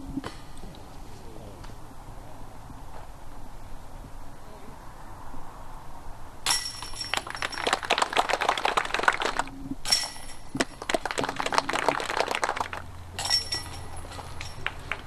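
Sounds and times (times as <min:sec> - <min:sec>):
disc striking metal chains: 0:06.4 - 0:07.8, 0:09.8 - 0:10.6, 0:13.1 - 0:15.0
chains jangling: 0:13.2 - 0:14.9.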